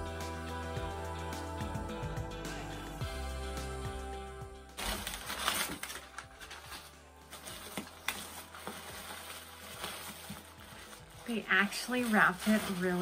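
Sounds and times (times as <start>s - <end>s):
background music: 0.0s - 13.0s
packing material crinkling: 4.8s - 13.0s.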